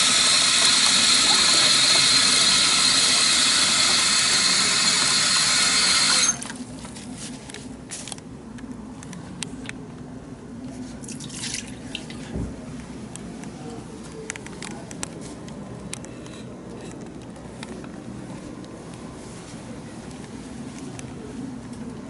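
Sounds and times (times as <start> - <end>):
tap water running into basin: 0.0 - 6.5.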